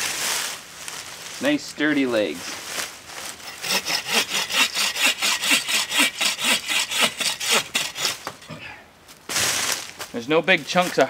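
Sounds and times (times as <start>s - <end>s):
hand saw cutting wood: 3.2s - 8.6s.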